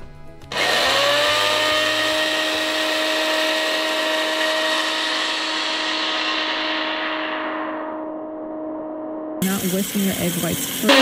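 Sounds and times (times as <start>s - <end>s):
blender motor whining: 0.5s - 7.2s, 9.4s - 11.0s.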